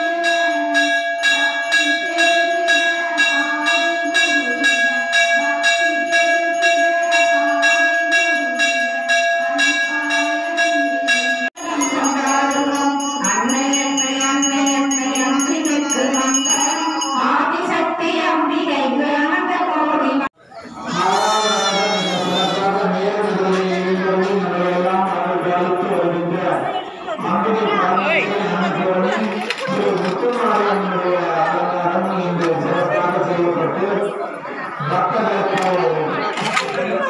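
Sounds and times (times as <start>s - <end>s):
temple bells ringing: 0.0s - 18.0s
crowd chanting: 11.5s - 17.4s, 20.3s - 37.0s.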